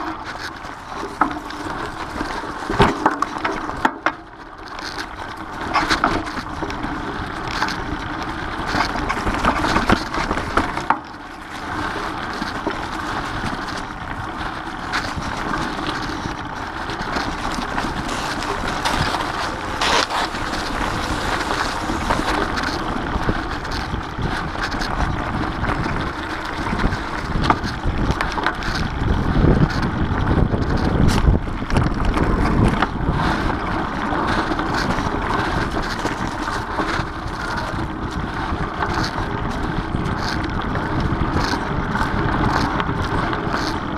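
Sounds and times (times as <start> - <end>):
bike knocking and rattling: 0.0 - 43.9
bike tyres rolling over dirt: 0.0 - 43.9
wind buffeting microphone: 11.6 - 43.9.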